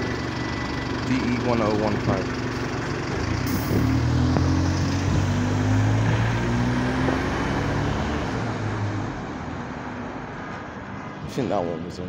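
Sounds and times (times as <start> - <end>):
bus diesel engine pulling away: 0.0 - 11.4.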